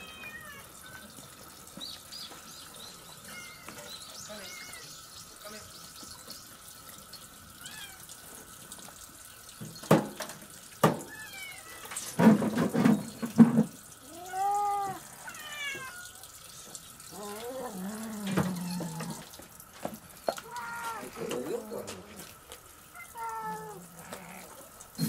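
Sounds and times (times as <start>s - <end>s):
cats meowing: 0.0s - 1.1s, 3.1s - 5.0s, 7.6s - 8.2s, 11.0s - 12.2s, 14.0s - 16.4s, 17.1s - 19.4s, 20.2s - 24.9s
tap trickling into steel sink: 8.7s - 15.0s.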